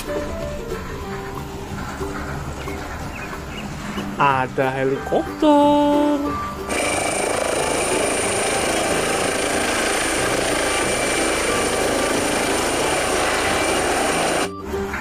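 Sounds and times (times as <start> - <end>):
high-pitched turbine whine: 6.4 - 14.6
helicopter rotor noise: 6.7 - 14.6.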